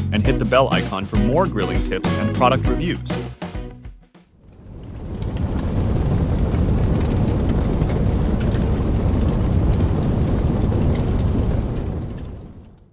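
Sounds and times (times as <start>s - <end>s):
fire crackling: 4.3s - 12.9s
flames rumbling: 4.4s - 12.9s.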